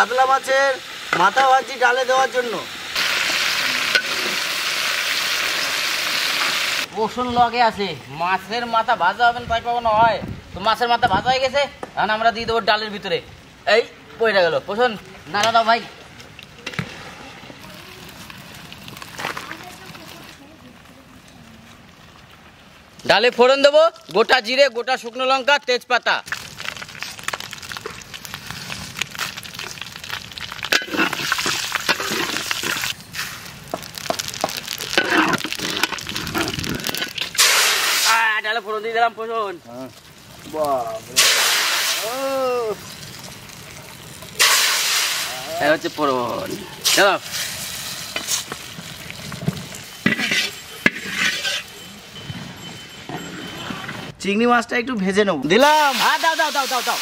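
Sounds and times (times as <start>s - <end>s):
spices sizzling in hot oil: 0.0s - 8.9s, 17.6s - 20.5s, 22.5s - 52.3s, 55.6s - 57.0s
metal spatula stirring: 30.7s - 33.0s, 34.9s - 37.8s, 50.0s - 54.0s
spoon scraping wok: 30.7s - 33.0s, 34.9s - 37.8s, 49.3s - 54.1s.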